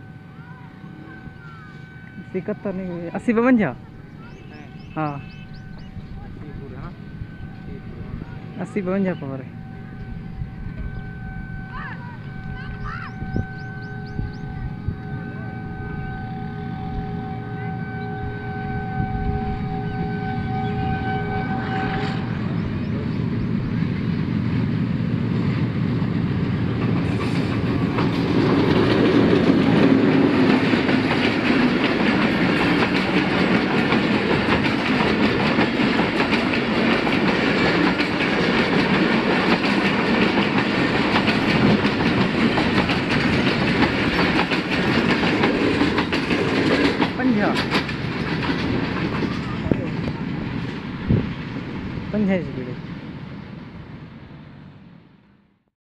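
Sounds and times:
locomotive horn chord: 0.0s - 23.2s
diesel locomotive engine passing: 0.0s - 55.7s
train wheels clickety-clack: 25.4s - 51.7s.

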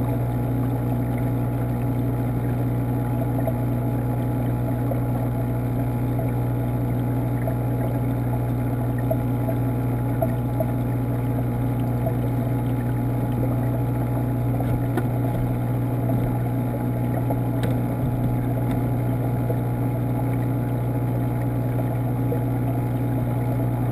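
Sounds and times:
aquarium pump hum: 0.0s - 23.9s
faint water noise: 0.0s - 23.9s.

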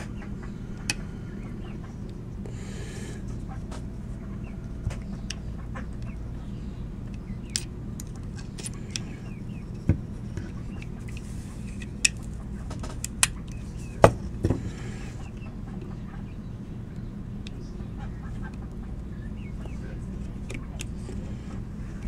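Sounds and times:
steady low hum: 0.0s - 22.0s
pistol parts clicking: 7.5s - 9.1s, 10.4s - 13.6s.

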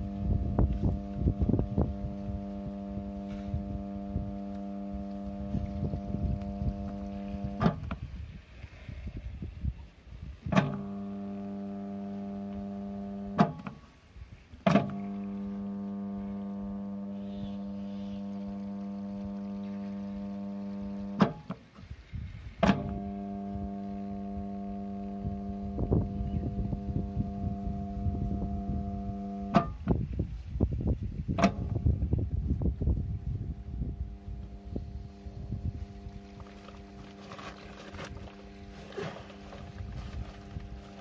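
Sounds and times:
electrical mains hum: 0.0s - 8.3s, 10.4s - 21.7s, 22.5s - 41.0s.

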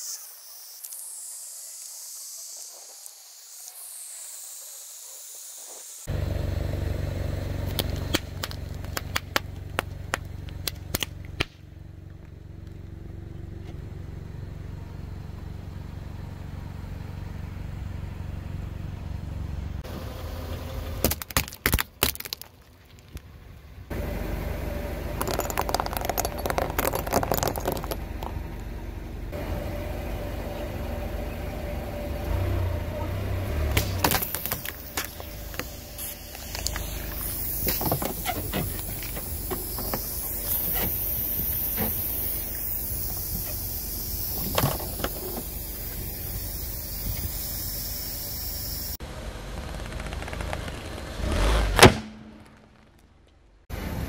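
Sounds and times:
car engine running low: 6.1s - 21.3s, 22.4s - 54.0s
objects crushed under tyre: 21.0s - 23.4s, 25.2s - 28.4s
foam hissing from aerosol cans: 33.7s - 49.0s.

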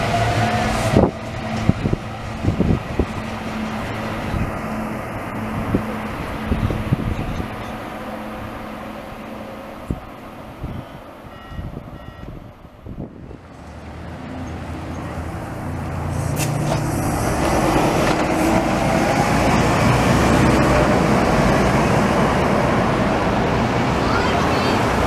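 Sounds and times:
bus engine pulling away: 0.0s - 25.0s
road noise: 0.0s - 25.0s
short high beeps: 10.7s - 12.3s.

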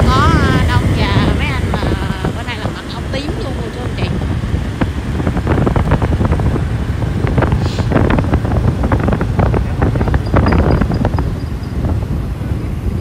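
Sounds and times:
motorbike engine rumble: 0.0s - 13.0s
road traffic: 0.0s - 13.0s
wind buffeting microphone: 0.0s - 13.0s.

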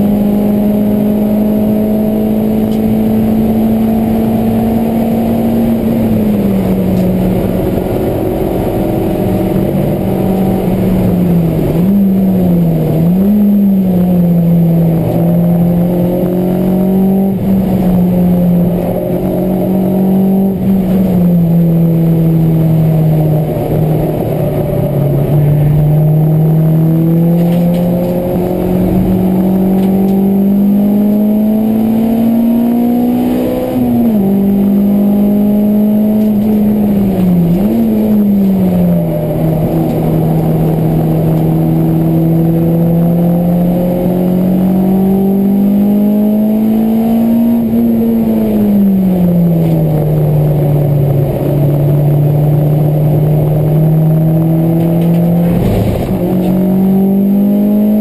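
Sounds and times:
car engine at high revs: 0.0s - 58.0s.

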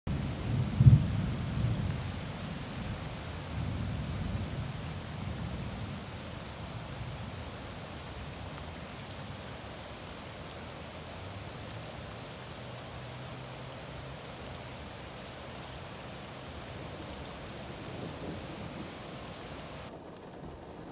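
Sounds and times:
rumble of thunder: 0.1s - 7.4s, 16.6s - 20.9s
rain falling on a street: 0.1s - 20.9s.

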